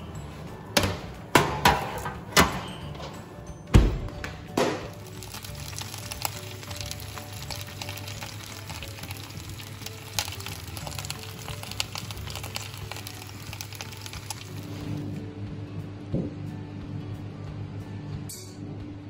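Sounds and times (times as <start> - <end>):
background music: 0.0 - 19.0
roast meat sizzling in a pan: 4.9 - 15.1.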